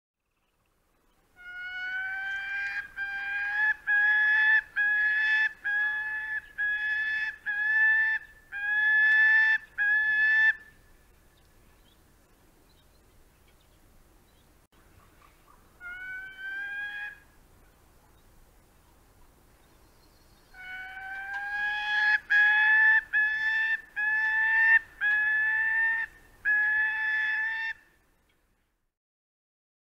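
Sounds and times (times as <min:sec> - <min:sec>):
falcon wailing calls: 0:01.4 - 0:10.6, 0:15.5 - 0:17.3, 0:20.6 - 0:27.8.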